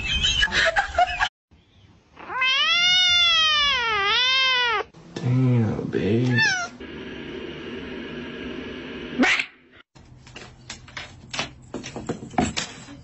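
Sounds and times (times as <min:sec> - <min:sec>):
cat crying loudly: 0:02.2 - 0:04.9.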